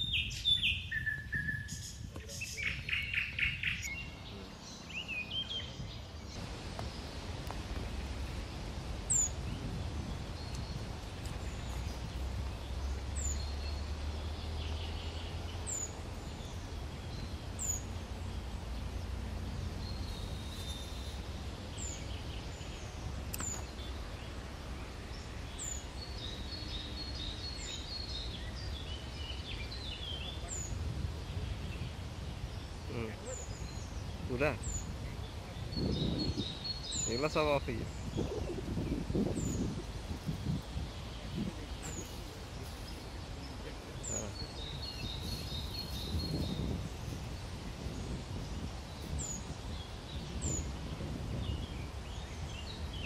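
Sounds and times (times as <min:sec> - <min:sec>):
birds chirping: 0:00.0 - 0:53.0
steady low rumble: 0:05.7 - 0:36.7.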